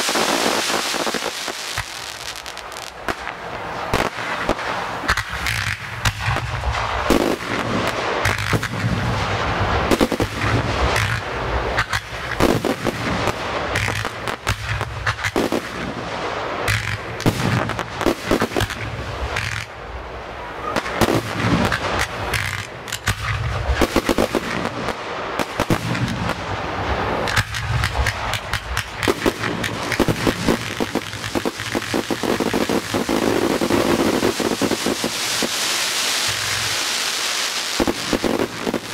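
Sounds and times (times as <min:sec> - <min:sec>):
fireworks bangs and cracks: 0:00.0 - 0:38.9.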